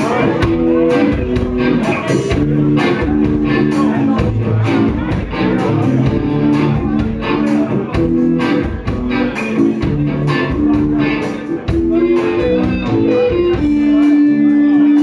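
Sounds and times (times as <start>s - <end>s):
bass guitar: 0.0s - 15.0s
electric guitar: 0.0s - 15.0s
keyboard: 0.0s - 15.0s
steady drum beat: 0.0s - 15.0s.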